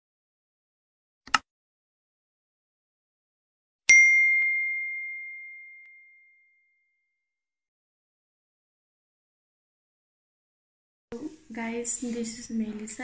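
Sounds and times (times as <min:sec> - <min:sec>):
notification bell ding: 0:03.9 - 0:06.8.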